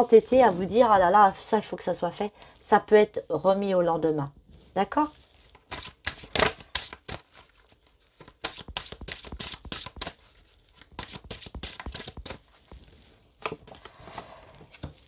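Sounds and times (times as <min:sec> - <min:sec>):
cards being shuffled: 0:05.2 - 0:13.9.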